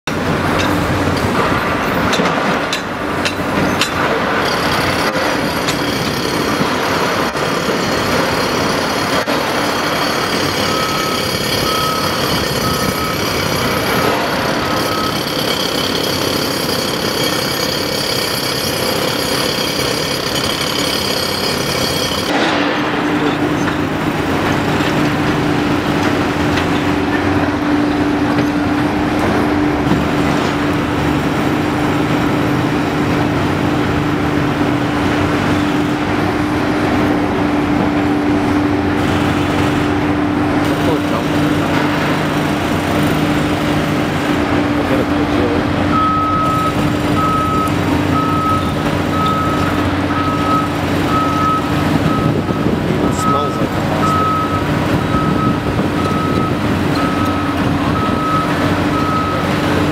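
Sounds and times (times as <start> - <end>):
excavator diesel engine under load: 0.0 - 59.9
backup alarm beeping: 7.3 - 22.3, 45.9 - 59.6.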